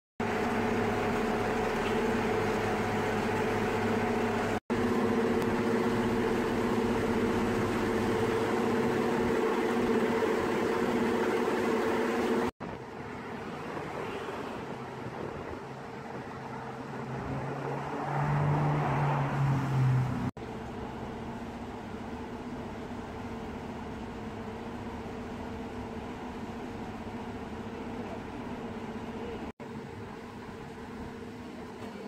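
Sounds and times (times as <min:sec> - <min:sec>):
diesel engine running: 0:00.2 - 0:13.8, 0:20.1 - 0:32.0.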